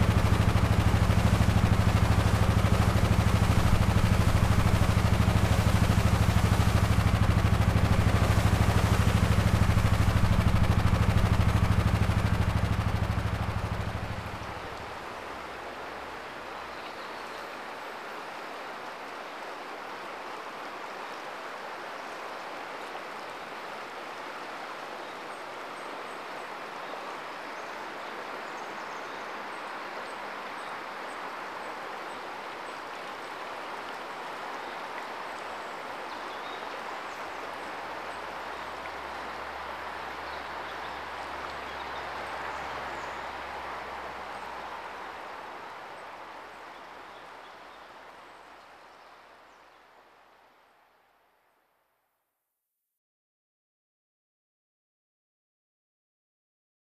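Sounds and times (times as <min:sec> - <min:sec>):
low rumble: 0:00.0 - 0:14.8
rushing water noise: 0:00.0 - 0:51.3.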